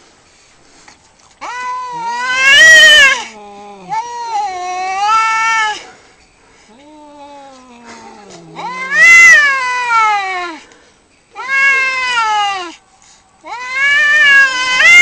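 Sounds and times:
cats yowling: 1.4s - 6.0s, 6.7s - 10.7s, 11.3s - 12.8s, 13.4s - 15.0s
low moaning yowl: 1.4s - 6.0s, 6.7s - 10.7s.

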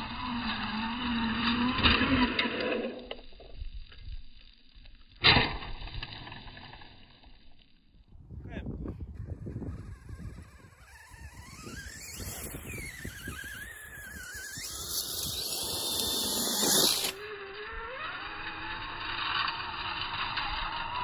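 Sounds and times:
electric motor whining: 0.0s - 3.5s, 8.8s - 21.0s.

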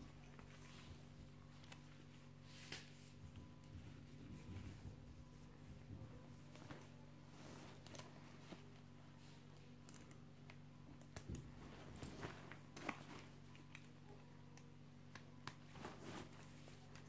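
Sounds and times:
low steady hum: 0.0s - 17.0s
fabric rustling: 11.5s - 13.5s, 15.6s - 17.0s.

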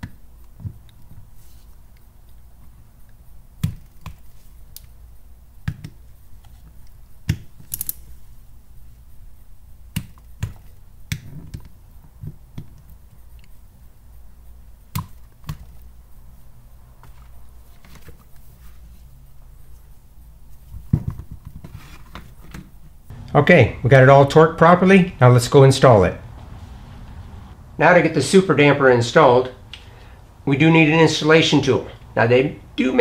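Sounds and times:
low steady hum: 23.1s - 33.0s.

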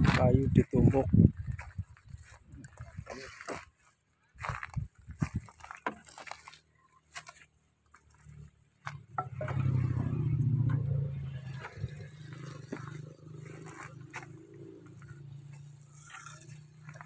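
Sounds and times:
wooden planks clattering: 5.2s - 7.4s.

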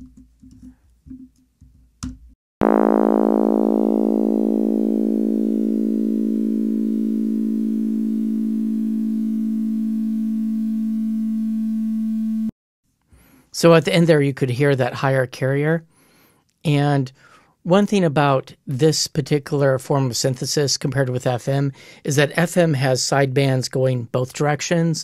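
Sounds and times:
synthesized tone rich in overtones: 2.6s - 12.5s.

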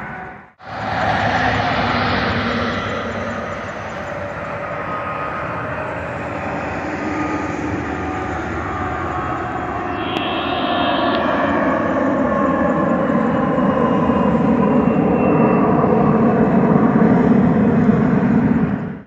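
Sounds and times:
jet airliner flying over: 0.0s - 19.0s.

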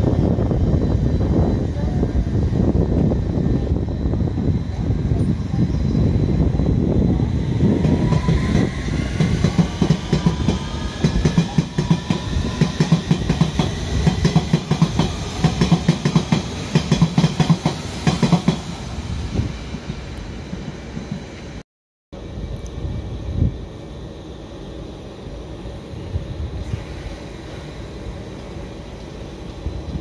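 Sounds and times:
heavy train rumble: 0.0s - 21.6s, 22.2s - 30.0s
train motors rising whine: 0.0s - 21.6s.

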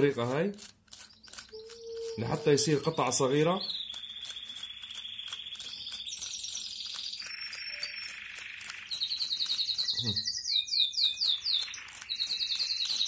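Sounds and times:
vegetable grated on hand grater: 0.0s - 9.6s
cage birds singing trills: 1.0s - 13.0s.

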